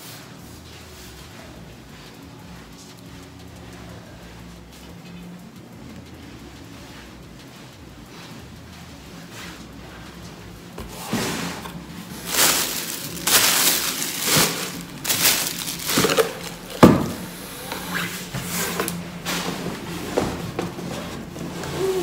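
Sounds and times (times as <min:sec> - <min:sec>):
cardboard and plastic rustling: 0:10.6 - 0:22.0.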